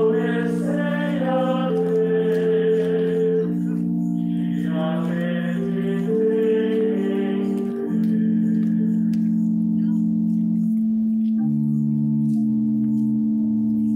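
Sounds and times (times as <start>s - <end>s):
choir singing: 0.0s - 10.0s
organ chords: 0.0s - 13.9s.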